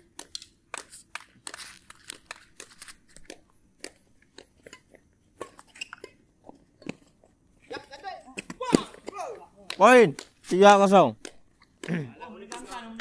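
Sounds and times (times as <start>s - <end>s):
racket hitting shuttlecock: 8.3s - 10.5s, 11.2s - 13.0s.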